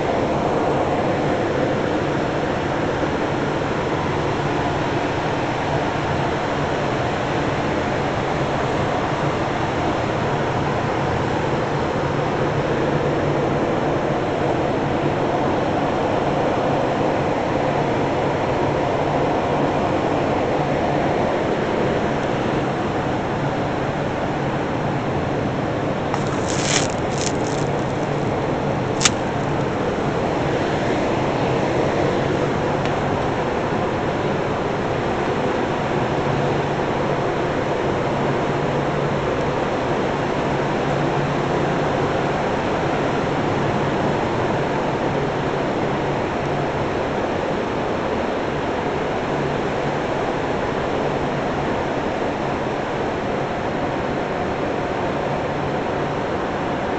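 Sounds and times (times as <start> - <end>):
plastic wrap crinkle: 26.1 - 28.3, 28.9 - 29.5.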